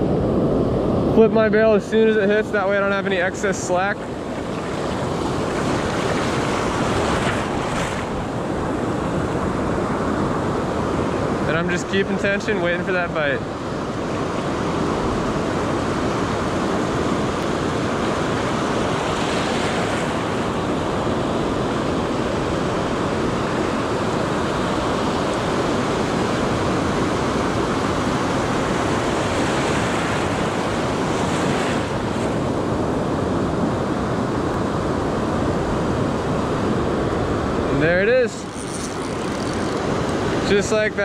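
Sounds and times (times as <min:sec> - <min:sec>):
wind buffeting microphone: 0:00.0 - 0:11.6
ocean surf breaking on sand: 0:01.2 - 0:41.0.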